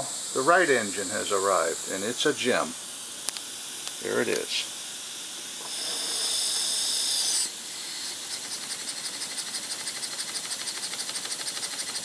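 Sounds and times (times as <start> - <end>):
steam hissing: 7.6 - 12.0
steam engine chuffing: 8.4 - 12.0.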